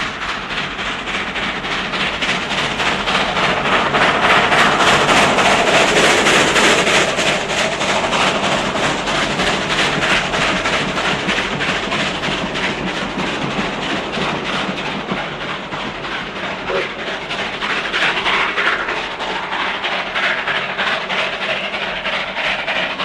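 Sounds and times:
steam locomotive passing: 0.0 - 23.0.

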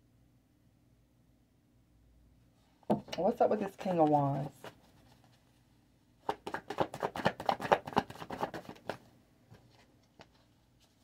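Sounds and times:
cards being shuffled: 6.2 - 11.0.

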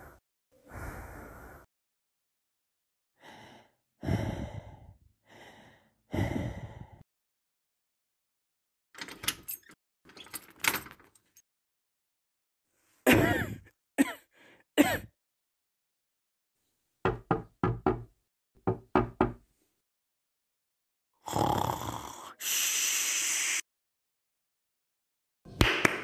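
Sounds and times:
lock clicking and rattling: 9.0 - 11.4
long noisy breath: 22.2 - 23.6.

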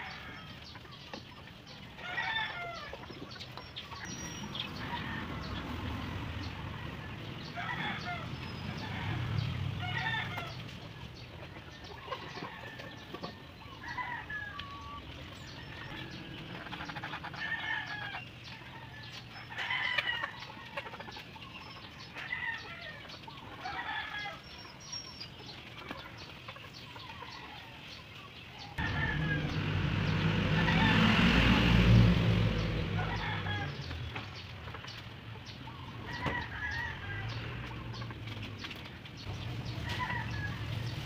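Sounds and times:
chickens clucking: 0.0 - 41.0
rooster crowing: 2.0 - 2.9, 6.8 - 10.6, 28.8 - 34.1, 36.0 - 37.6
loud low rumble: 28.8 - 34.2.

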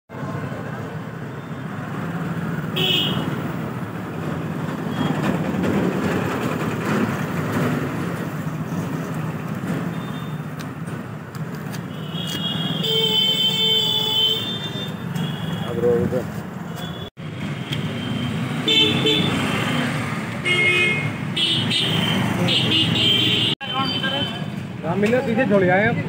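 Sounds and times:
road traffic engines: 0.1 - 26.0
vehicle horns honking: 2.8 - 3.4, 11.9 - 16.0, 18.0 - 19.7, 20.4 - 24.5.

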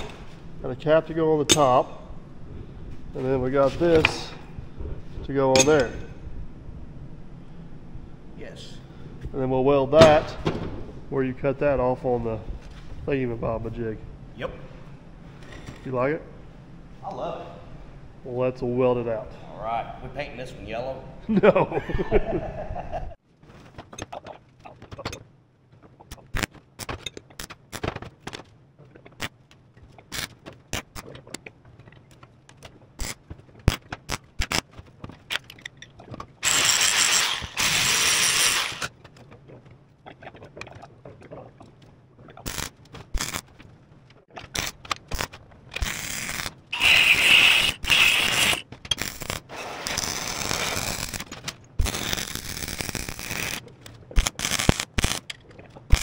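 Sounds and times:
steel parts clanking: 5.5 - 6.1, 35.3 - 38.9
welding arc crackling: 33.0 - 34.8, 36.4 - 39.0, 42.4 - 43.6, 44.5 - 56.0
angle grinder on steel: 36.4 - 38.9, 46.8 - 48.6.

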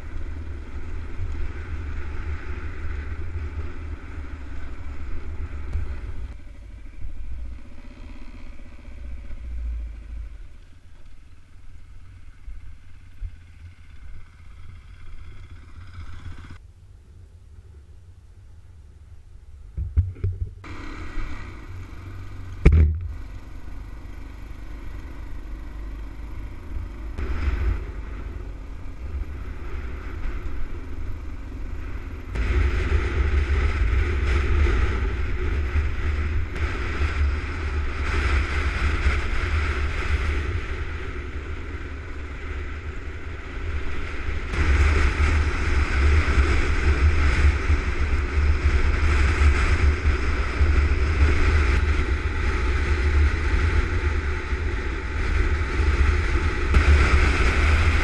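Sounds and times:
motorcycle engine running: 0.0 - 58.0
wind buffeting microphone: 27.2 - 58.0.

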